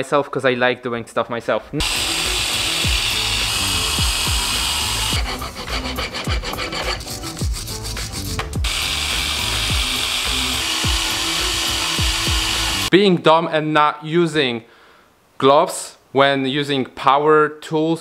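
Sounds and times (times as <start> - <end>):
background music with beat: 1.8 - 12.9
wire brush grinder rasping: 1.8 - 12.9.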